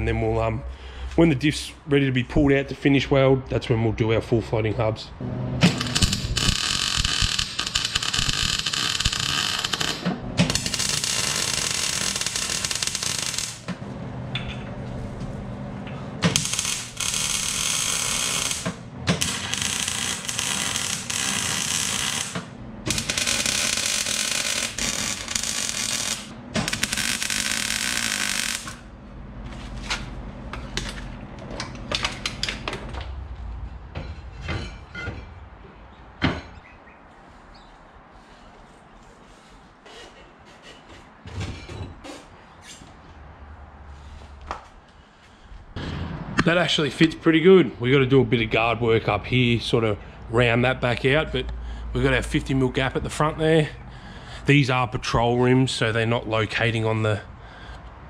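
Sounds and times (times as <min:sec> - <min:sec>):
welder arc crackling and hissing: 0:05.6 - 0:13.8, 0:16.2 - 0:28.9.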